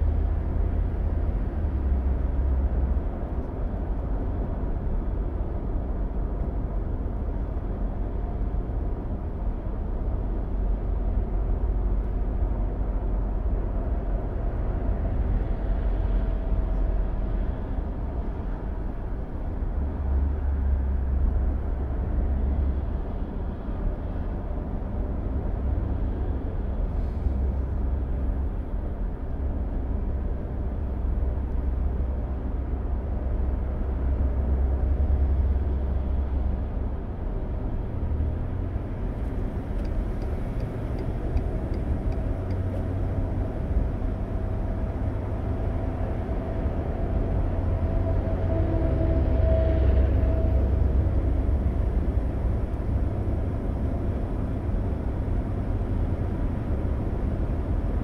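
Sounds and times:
car road noise at cruising speed: 0.0s - 58.0s
turn signal ticking: 39.6s - 42.9s.

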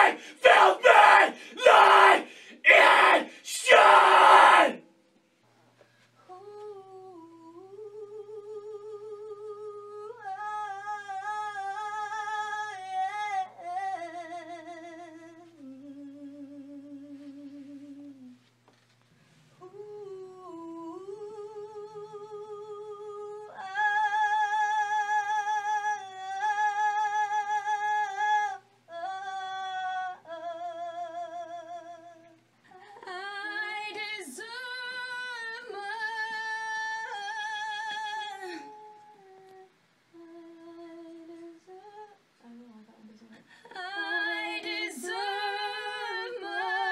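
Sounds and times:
person singing wordless melody: 19.6s - 24.3s.

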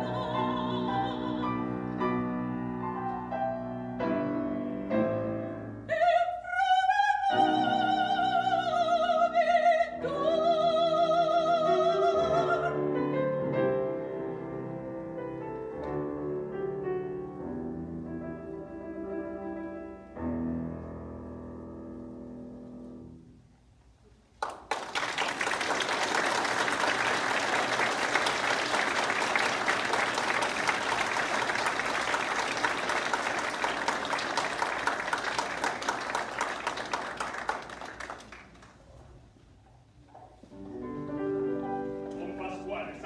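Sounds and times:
grand piano playing: 0.0s - 6.2s, 7.1s - 23.5s, 40.4s - 43.0s
audience applauding: 24.4s - 38.9s.

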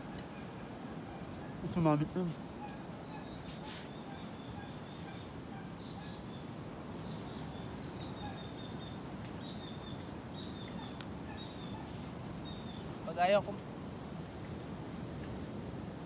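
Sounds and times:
outdoor background rush: 0.0s - 16.0s
faint high bird chirps: 2.6s - 13.0s.

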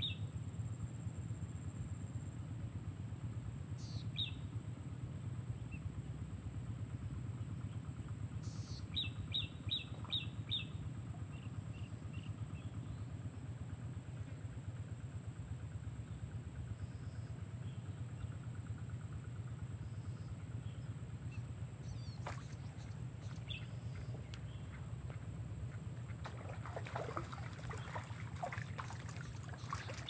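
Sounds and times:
small bird chirping: 19.9s - 24.9s.

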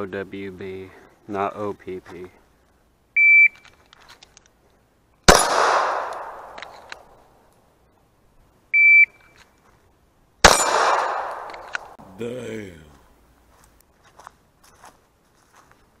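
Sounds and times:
pistol shots with echo: 5.3s - 7.2s, 10.4s - 12.0s.

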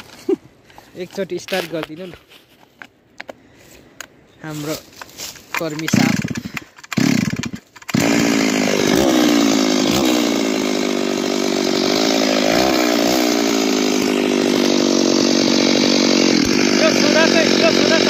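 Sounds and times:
chainsaw starting and running: 5.6s - 18.0s.

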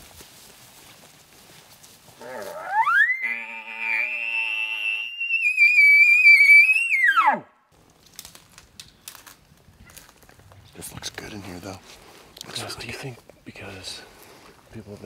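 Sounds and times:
elk bugling: 2.2s - 7.5s.

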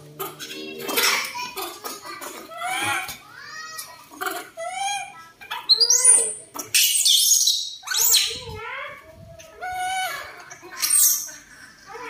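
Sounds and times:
baby monkeys squealing: 2.5s - 3.2s, 4.2s - 8.6s, 9.6s - 11.3s.

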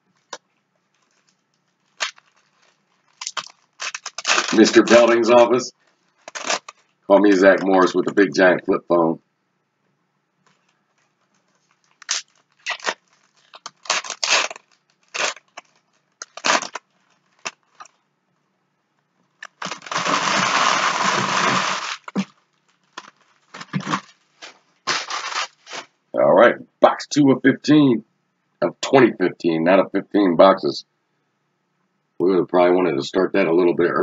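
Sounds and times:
foil wrappers crinkling and tearing: 0.2s - 7.0s, 10.5s - 18.0s, 19.4s - 25.9s.

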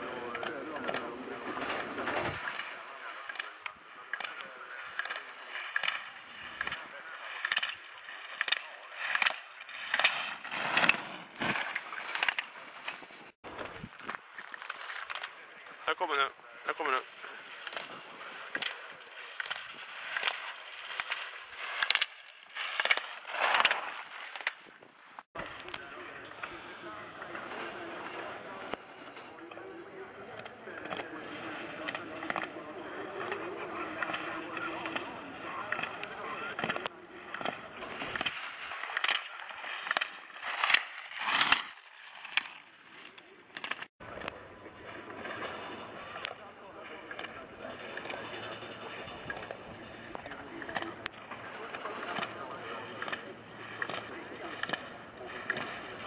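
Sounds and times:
skis scraping on hard snow: 0.3s - 15.4s, 16.7s - 25.3s, 37.4s - 43.9s.

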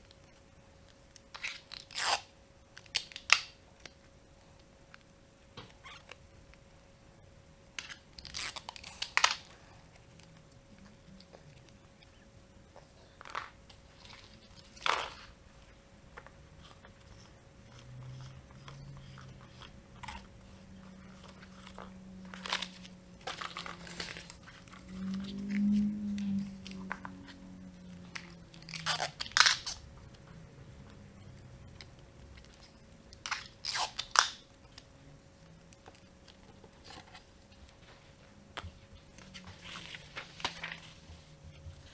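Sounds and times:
paper crunching and rustling: 21.1s - 25.9s, 39.2s - 41.9s.

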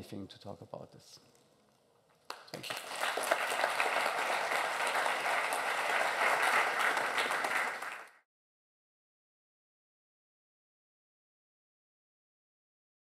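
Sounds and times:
audience applauding: 2.3s - 8.2s.

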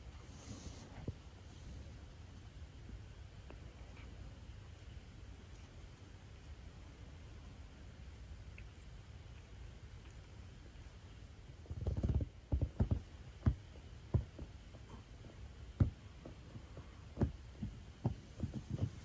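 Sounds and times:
low background rumble: 0.0s - 19.0s
soft low thuds: 11.5s - 19.0s.

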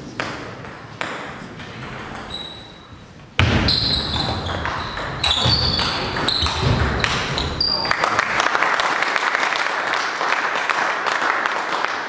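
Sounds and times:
shoes squeaking on floor: 1.8s - 8.0s.

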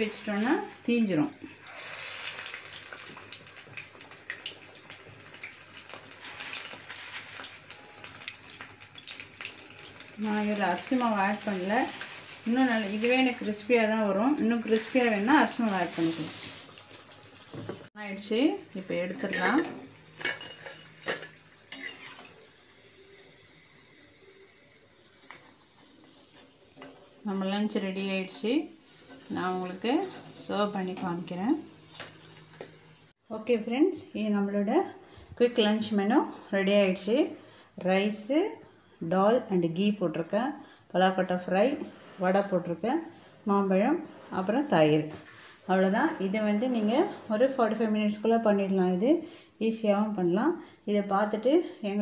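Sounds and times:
deep-frying sizzle with pops: 0.0s - 33.2s
ladle clinking on steel plate: 19.3s - 22.1s.

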